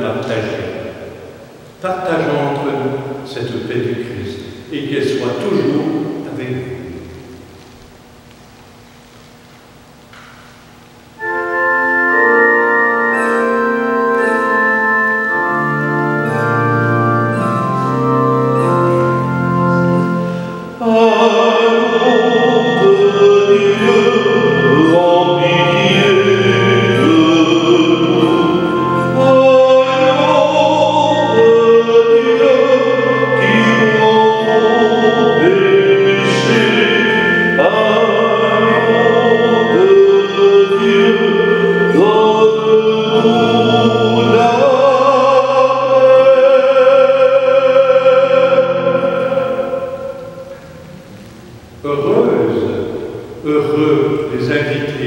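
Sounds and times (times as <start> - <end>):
organ playing held chords: 0.0 - 55.0
person singing with vibrato: 11.1 - 55.0.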